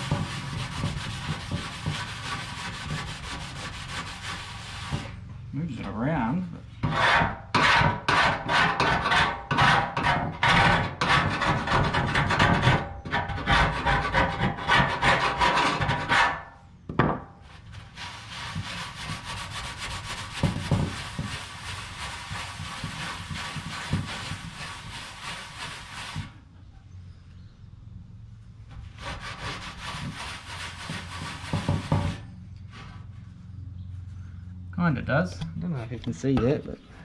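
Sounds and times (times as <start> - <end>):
scraper scraping metal panel: 0.0 - 5.2, 6.7 - 16.6, 17.4 - 26.4, 28.7 - 33.1
rag rubbing on panel: 0.0 - 5.3, 6.4 - 16.5, 17.5 - 26.4, 28.7 - 33.2.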